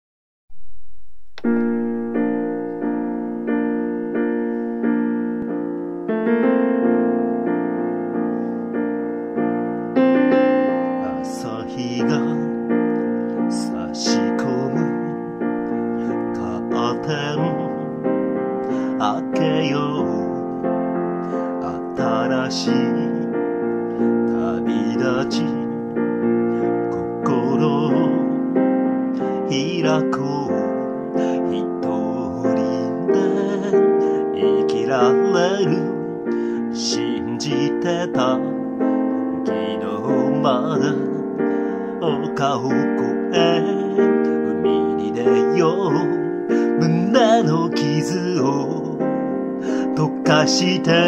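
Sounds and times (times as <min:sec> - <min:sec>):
piano playing slow chords: 0:00.5 - 0:51.0
person singing with vibrato: 0:09.9 - 0:51.0.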